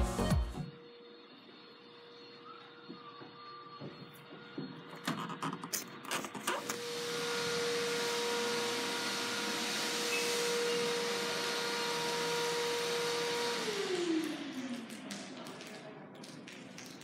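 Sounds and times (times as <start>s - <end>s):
small electric motor running: 6.6s - 15.0s.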